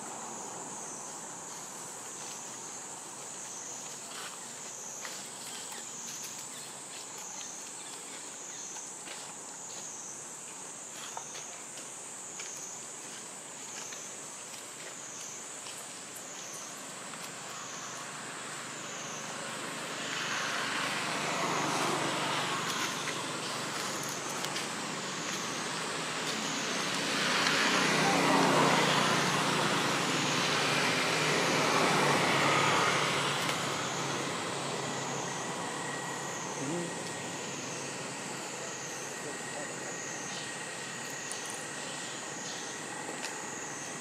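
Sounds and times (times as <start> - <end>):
road traffic passing: 13.3 - 44.0.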